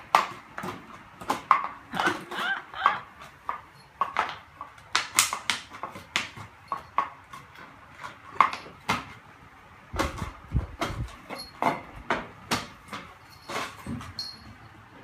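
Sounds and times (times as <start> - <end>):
dog chewing plastic bottle: 0.0 - 9.2.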